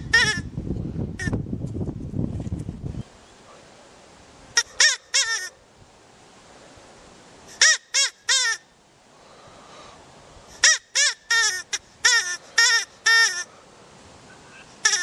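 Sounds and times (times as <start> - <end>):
harsh pitched animal call: 4.6 - 5.5, 10.6 - 13.5.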